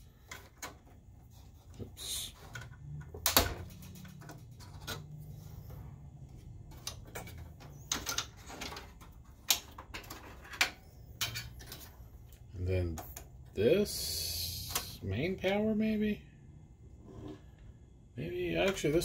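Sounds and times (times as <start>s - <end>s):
plastic connectors clicking: 6.7s - 13.3s.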